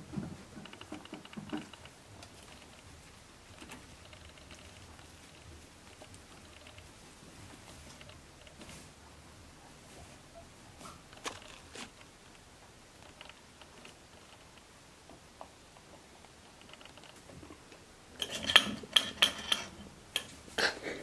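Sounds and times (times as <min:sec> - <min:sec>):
guinea pigs clicking on wood: 0:00.0 - 0:08.8, 0:10.4 - 0:20.4.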